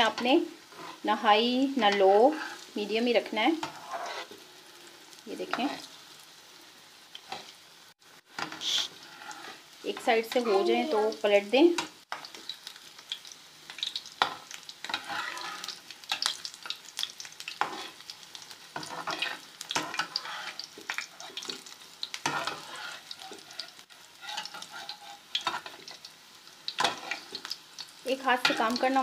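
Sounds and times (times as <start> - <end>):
batter sizzling in a pan: 0.0 - 29.0
utensil scraping a pan: 0.1 - 1.1, 3.6 - 4.4, 8.4 - 10.5, 14.2 - 16.2, 17.6 - 18.0, 18.7 - 25.9, 26.8 - 27.4.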